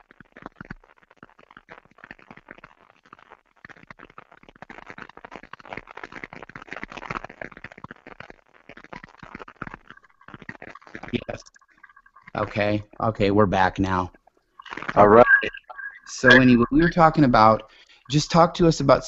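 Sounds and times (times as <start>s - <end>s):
microphone crackling and rustling: 0.0s - 12.4s.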